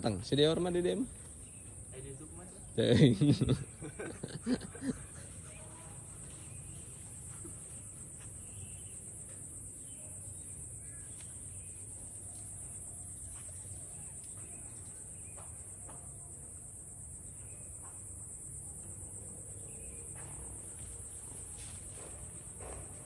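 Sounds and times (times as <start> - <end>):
faint bird chirps: 4.8 - 15.9, 17.3 - 18.0, 19.4 - 20.2.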